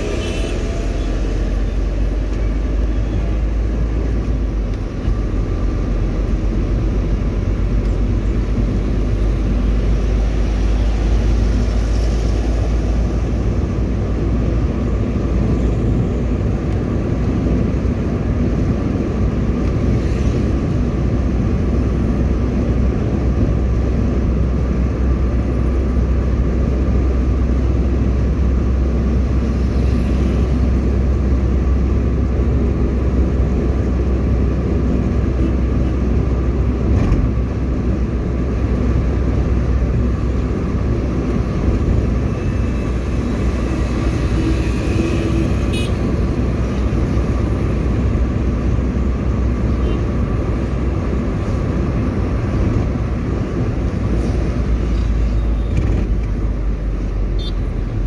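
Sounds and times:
vehicle engine and tyre rumble: 0:00.0 - 0:58.0.

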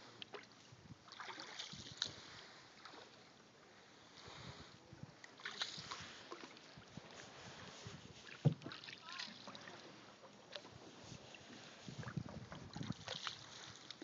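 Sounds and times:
paddle strokes splashing water: 0:00.0 - 0:14.0
canoe knock: 0:08.4 - 0:09.3.

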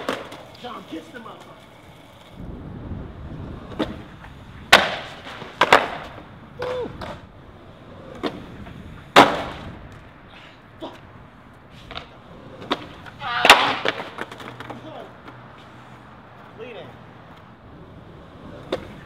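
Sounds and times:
skateboard clattering on concrete: 0:00.0 - 0:02.4, 0:03.6 - 0:07.3, 0:07.9 - 0:10.0, 0:11.8 - 0:15.4.

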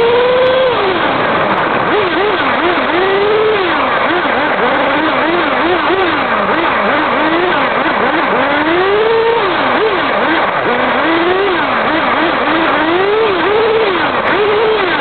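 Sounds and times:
tyre and road noise: 0:00.0 - 0:15.0
toy car motor whining: 0:01.9 - 0:15.0.

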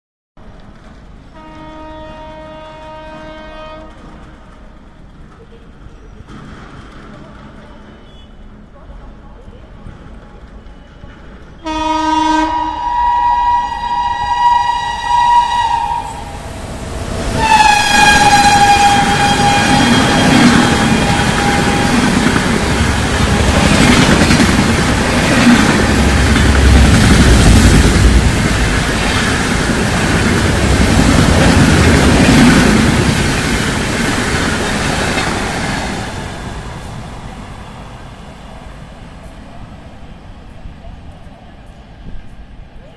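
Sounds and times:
train coaches rumbling: 0:00.4 - 0:42.9
train horn blasts: 0:01.3 - 0:04.1, 0:11.6 - 0:16.4, 0:17.3 - 0:22.3.

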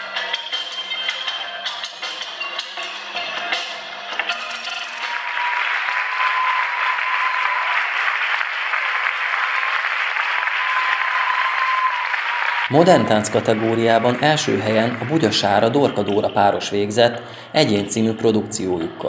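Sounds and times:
music: 0:00.0 - 0:19.0
audience applause: 0:04.3 - 0:17.2.

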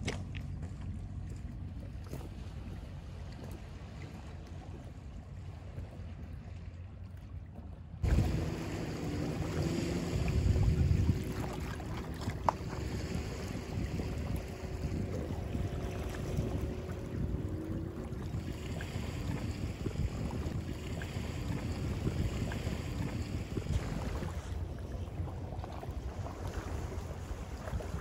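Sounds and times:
sea: 0:00.0 - 0:28.0
wind buffeting microphone: 0:08.0 - 0:28.0.

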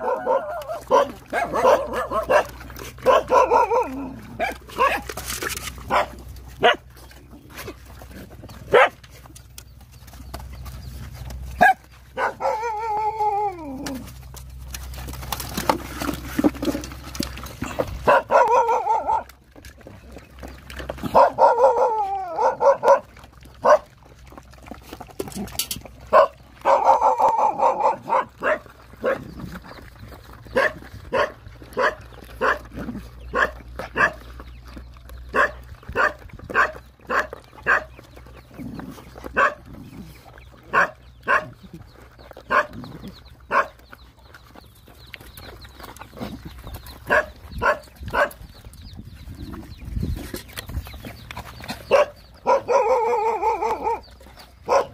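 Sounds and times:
puppies yelping: 0:00.0 - 0:54.9
dog whining: 0:11.6 - 0:14.1.

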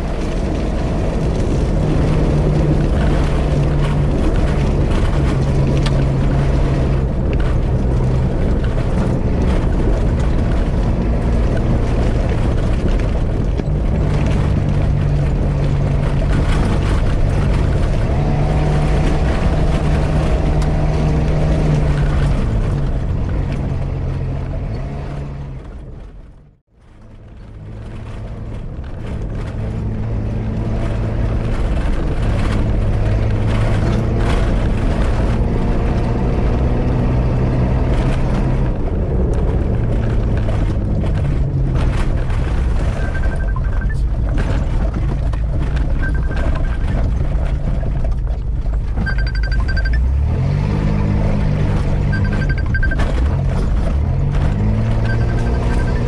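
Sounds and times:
off-road vehicle engine running: 0:00.0 - 0:56.0
road rumble: 0:00.0 - 0:56.0
wind: 0:00.0 - 0:56.0.

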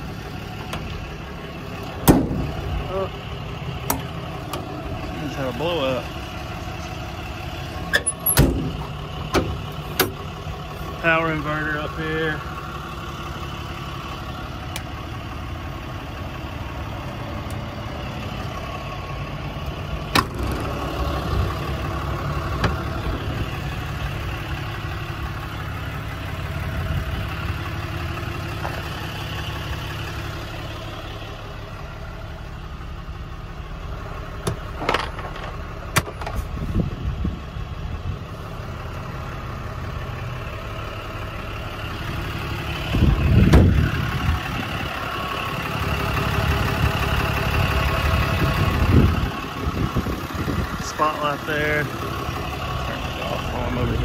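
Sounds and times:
diesel engine idling: 0:00.0 - 0:54.0
loud thump: 0:02.0 - 0:02.5, 0:08.4 - 0:08.8
sharp clicks and knocks: 0:07.9 - 0:10.2, 0:34.4 - 0:36.4.

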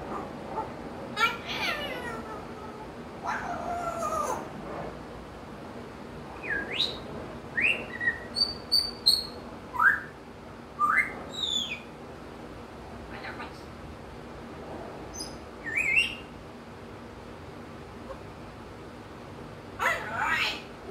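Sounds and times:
parrot whistling and chirping: 0:06.4 - 0:10.2, 0:10.8 - 0:11.9, 0:15.1 - 0:16.3.

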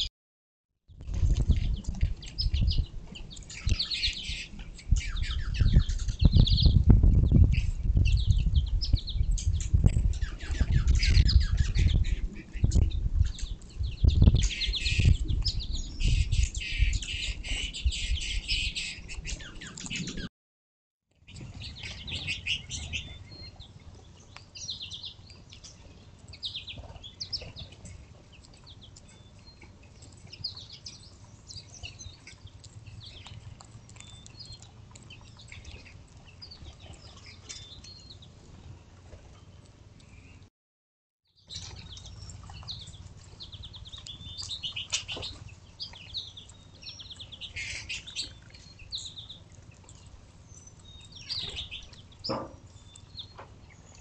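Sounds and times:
small birds chirping: 0:01.0 - 0:20.3, 0:21.1 - 0:40.5, 0:41.3 - 0:54.0
thumps and rustling near microphone: 0:52.2 - 0:52.7.

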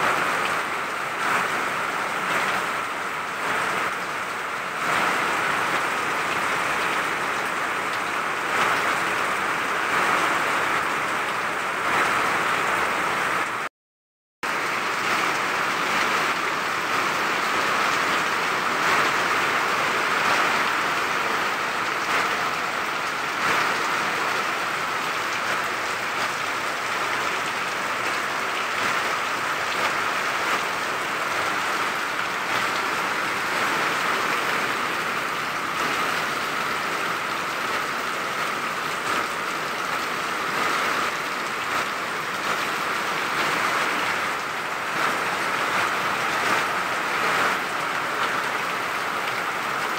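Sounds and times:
heavy rain: 0:00.0 - 0:13.7, 0:14.4 - 0:49.9
runoff pouring and splashing: 0:14.5 - 0:49.8.

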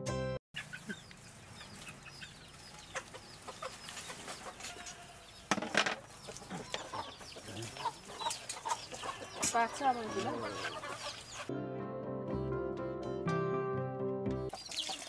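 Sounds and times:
chickens clucking: 0:00.6 - 0:11.5, 0:14.5 - 0:15.0.

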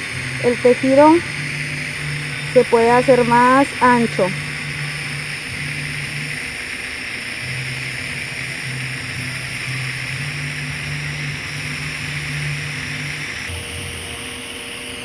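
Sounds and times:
low hum: 0:00.0 - 0:06.4
welding arc hissing: 0:00.0 - 0:15.0.

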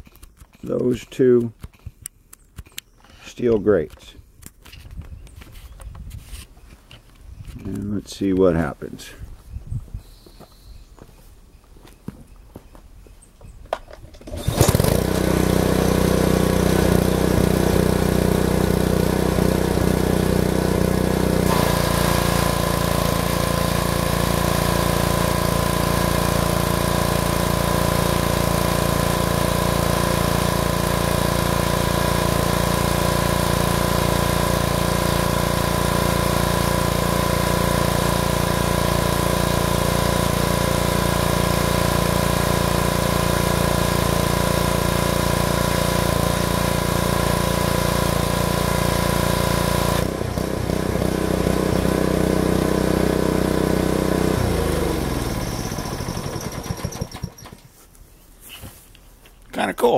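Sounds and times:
pressure washer engine and water jet: 0:14.2 - 0:57.6.

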